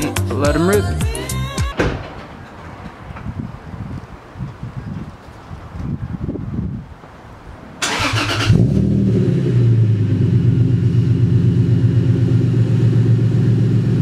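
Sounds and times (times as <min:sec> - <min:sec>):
car engine starting and idling: 0:07.8 - 0:14.0.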